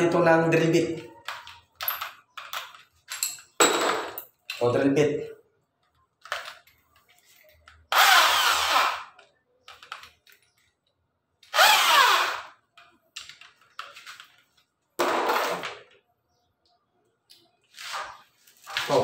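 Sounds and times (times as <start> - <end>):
electric drill motor whine: 7.9 - 9.1, 11.5 - 12.6.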